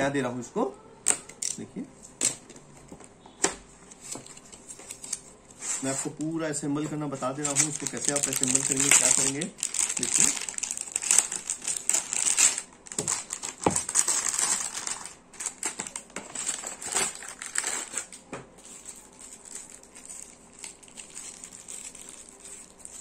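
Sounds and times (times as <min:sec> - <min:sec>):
plastic bag crinkling: 0:07.1 - 0:23.0.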